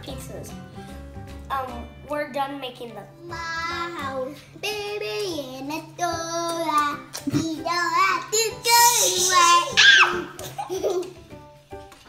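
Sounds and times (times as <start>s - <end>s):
child singing wordlessly: 3.2s - 9.8s.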